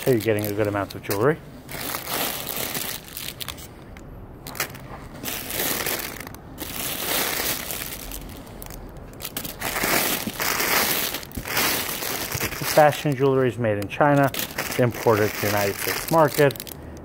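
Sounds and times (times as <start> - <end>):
plastic bags crinkling: 0.0 - 17.0.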